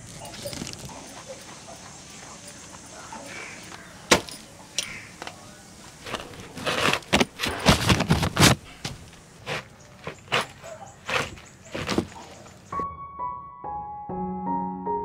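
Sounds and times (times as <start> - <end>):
knife chopping fruit: 9.4 - 12.4.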